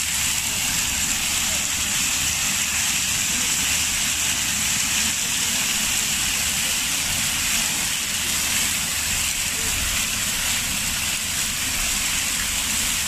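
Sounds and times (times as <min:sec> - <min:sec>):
fountain water splashing: 0:00.0 - 0:13.0.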